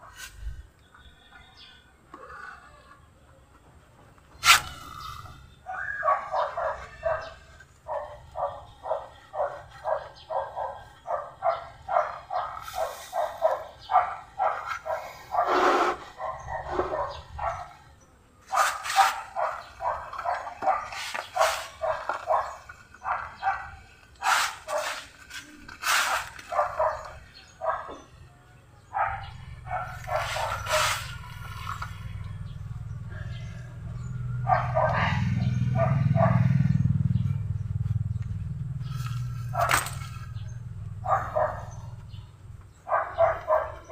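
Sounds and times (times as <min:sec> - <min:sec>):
dog barking: 0:05.7 - 0:17.9, 0:18.5 - 0:25.0, 0:26.5 - 0:28.1, 0:28.9 - 0:32.5, 0:33.3 - 0:36.8, 0:39.5 - 0:42.0, 0:42.8 - 0:43.9.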